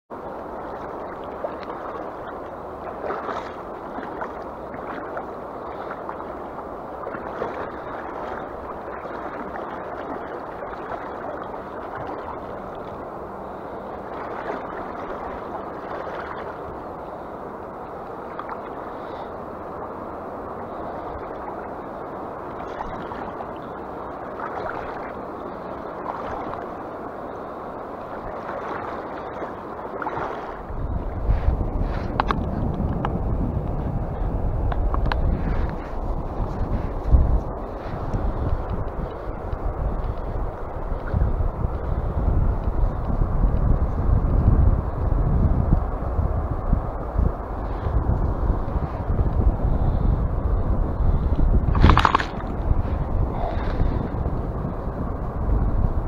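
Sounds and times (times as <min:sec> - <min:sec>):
river current rushing: 0:00.2 - 0:42.6, 0:51.6 - 0:55.3
water gurgles: 0:21.1 - 0:26.8, 0:51.4 - 0:55.0.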